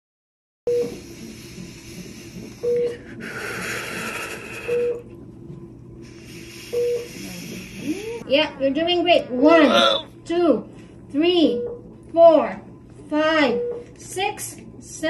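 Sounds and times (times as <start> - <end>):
monitor beeping: 0.7 - 1.2, 2.4 - 5.2, 6.4 - 10.2, 13.4 - 14.2
woman breathing with hissing breaths: 0.8 - 5.1, 6.0 - 8.2.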